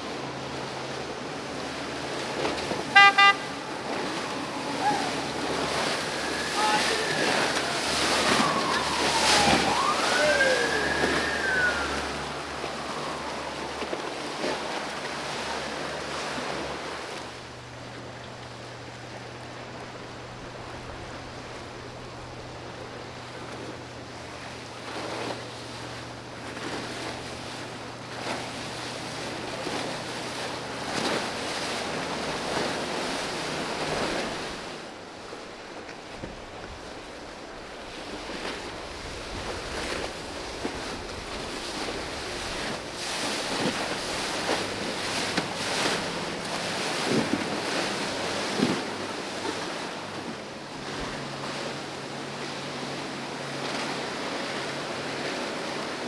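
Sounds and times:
choppy water slapping: 0.0s - 56.0s
low boat engine hum: 0.0s - 56.0s
rising and falling whistle: 4.6s - 13.6s.

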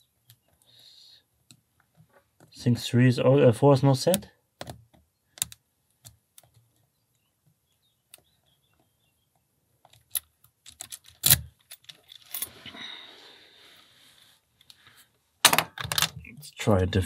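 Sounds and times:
lock pick clicking in padlock: 9.9s - 12.4s.

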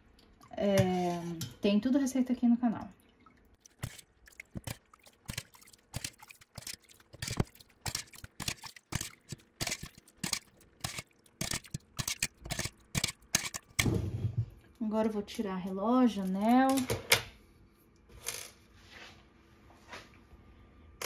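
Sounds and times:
metal skimmer scraping a pot: 3.7s - 13.9s.

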